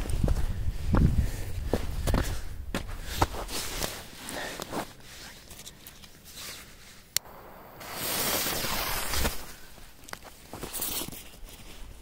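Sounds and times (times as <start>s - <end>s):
firecracker fuse sizzling: 7.2s - 9.8s.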